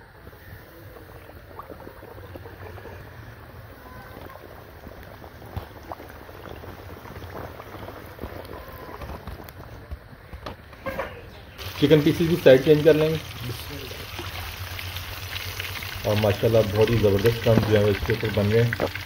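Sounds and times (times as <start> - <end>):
chicken deep-frying in oil: 0.0 - 9.8, 11.6 - 19.0.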